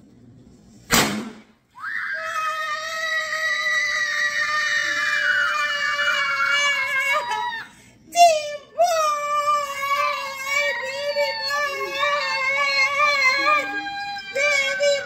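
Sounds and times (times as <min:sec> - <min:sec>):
confetti cannon pop: 0:00.9 - 0:01.5
high-pitched excited scream: 0:01.7 - 0:15.0.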